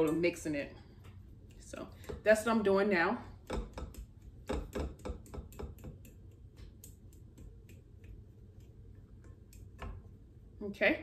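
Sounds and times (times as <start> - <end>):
fork tapping a glass bowl: 3.4 - 8.7.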